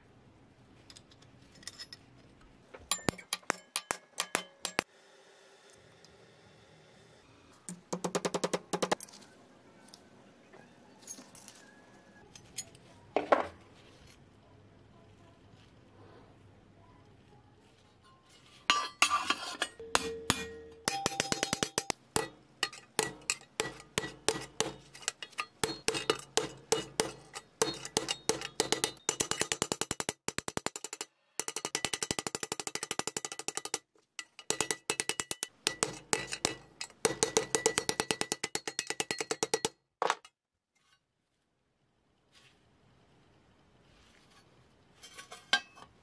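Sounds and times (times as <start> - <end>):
hammer tapping sheet metal: 2.8 - 4.9, 7.7 - 9.0, 18.7 - 39.8.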